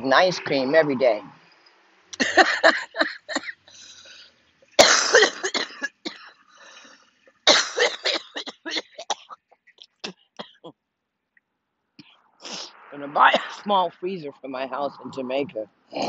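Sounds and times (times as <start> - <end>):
woman coughing: 2.2 - 3.6, 4.8 - 6.3, 7.5 - 9.4.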